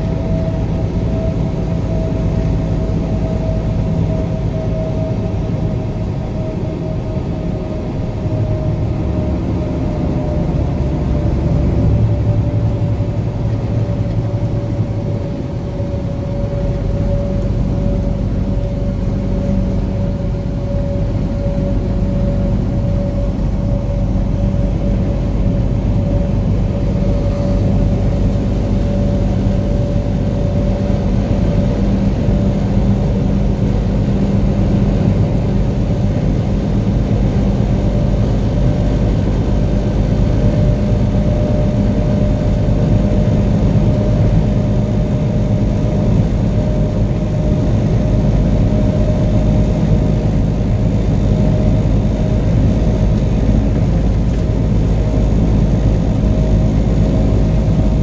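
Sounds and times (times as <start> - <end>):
faint steady whine: 0.0 - 58.0
truck engine drone: 0.0 - 58.0.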